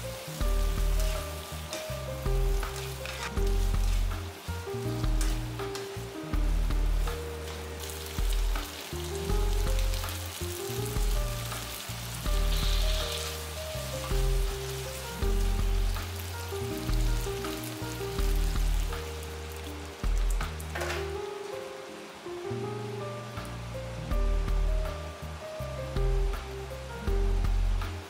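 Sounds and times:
spatula turning food: 0.0 - 6.2, 12.3 - 14.8
prawns sizzling in a wok: 0.0 - 28.0.

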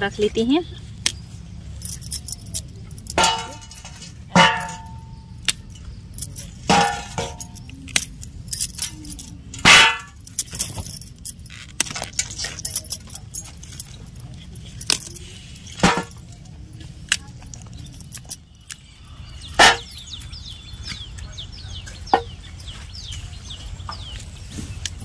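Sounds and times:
bangles jangling: 1.0 - 16.5, 17.1 - 20.7
vegetables clanging into steel bowl: 1.8 - 16.5, 19.5 - 20.2.

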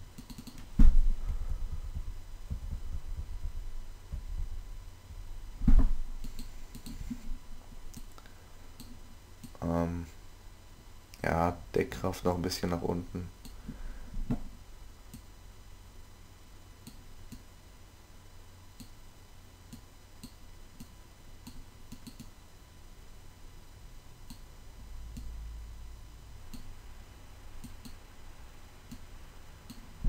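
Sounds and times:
low hum: 0.0 - 30.0
computer mouse clicks: 0.2 - 0.7, 6.2 - 7.0, 18.8 - 19.0, 19.7 - 22.3, 27.6 - 28.0.

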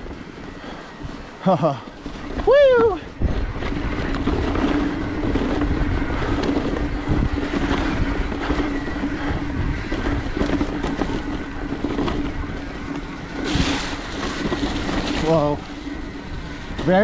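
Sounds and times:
bike tyres rolling on dirt: 0.0 - 17.0
wind buffeting microphone: 0.0 - 17.0.

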